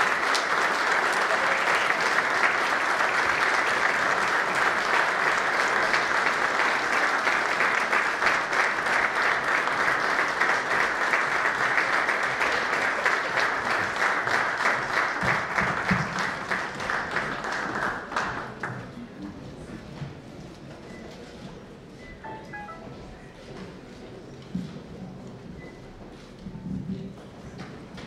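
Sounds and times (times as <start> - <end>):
audience applauding: 0.0 - 18.8.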